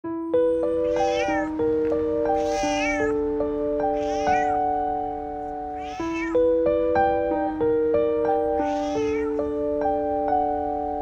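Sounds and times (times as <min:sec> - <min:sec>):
slow piano music: 0:00.0 - 0:11.0
cat meowing: 0:00.6 - 0:04.8, 0:05.5 - 0:06.5, 0:08.3 - 0:09.6.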